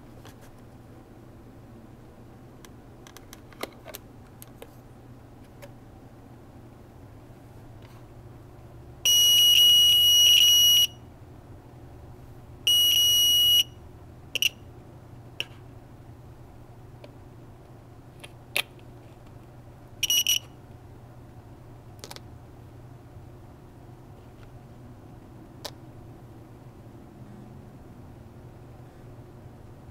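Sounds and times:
high-pitched buzzer beep: 9.1 - 11.0, 12.7 - 13.8, 14.4 - 14.6, 20.0 - 20.5.

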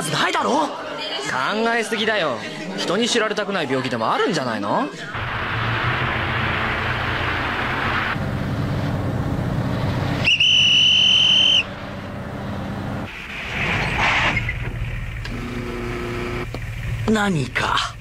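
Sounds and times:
police whistle blast: 10.2 - 11.8
car engine running: 14.6 - 18.0.

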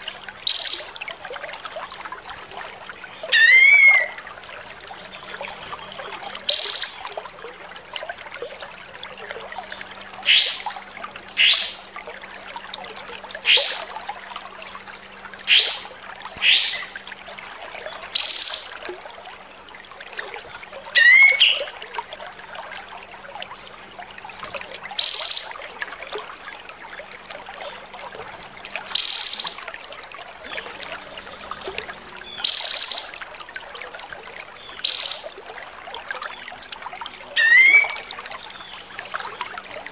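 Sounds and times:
songbird calling harsh rising notes: 37.4 - 38.0.

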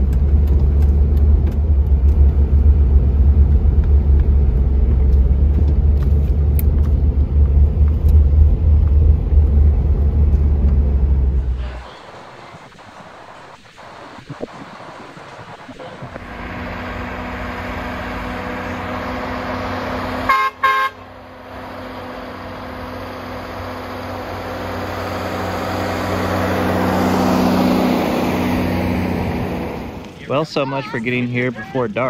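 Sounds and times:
diesel truck engine running: 0.0 - 32.0
truck horn toots: 20.1 - 21.1.

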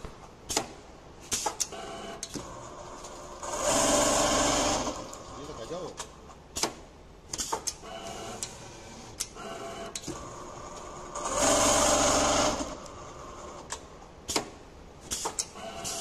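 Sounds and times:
sewing machine humming: 1.8 - 5.2, 9.4 - 13.6.

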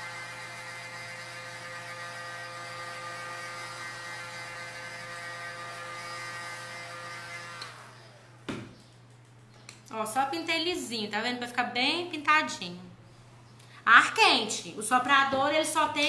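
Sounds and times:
heat gun motor whine: 0.0 - 8.2.

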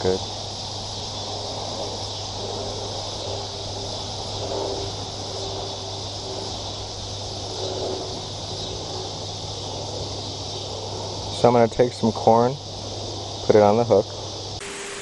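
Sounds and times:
insects chirping: 0.0 - 15.0
low steady hum: 14.6 - 15.0.

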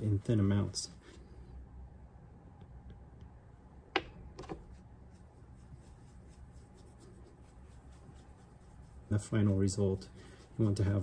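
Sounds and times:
cloth rubbing leather: 4.6 - 11.0.

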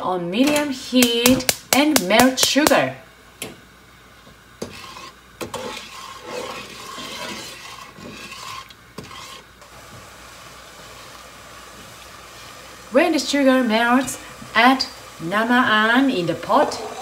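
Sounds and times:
spatula scraping a pot: 4.6 - 9.7.

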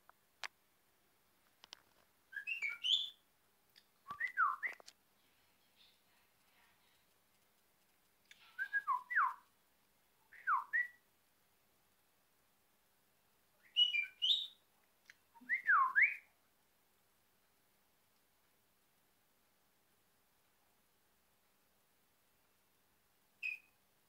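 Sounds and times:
budgerigar whistling: 2.4 - 3.2, 13.6 - 14.6, 23.4 - 23.7.

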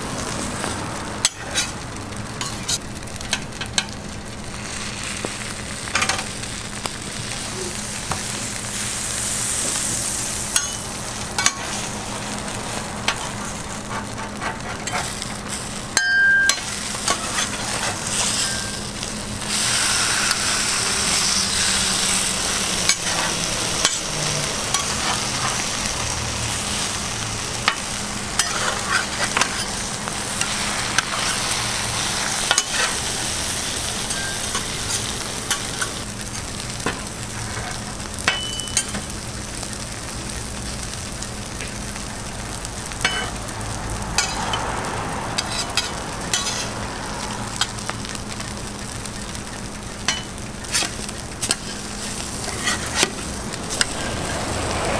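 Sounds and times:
food sizzling on griddle: 0.0 - 54.9
metal spatula scraping griddle: 1.2 - 1.8, 2.4 - 2.8, 8.8 - 27.0, 27.6 - 39.1, 44.2 - 46.8, 50.0 - 54.5.

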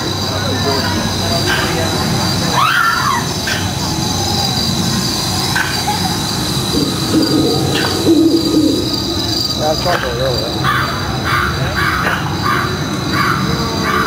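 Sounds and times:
faint voices: 0.0 - 14.0
animal-like calls: 5.4 - 14.0.

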